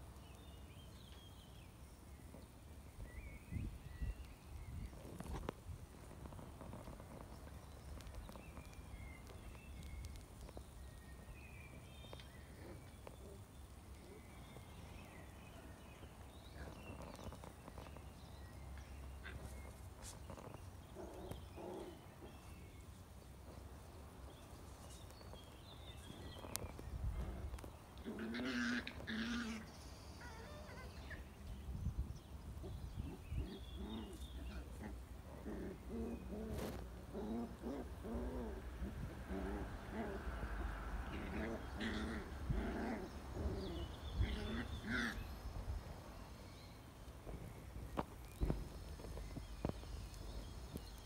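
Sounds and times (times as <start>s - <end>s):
puppies play-fighting: 24.5s - 31.6s, 32.6s - 46.0s
puppy growling: 26.4s - 31.2s, 33.0s - 45.3s.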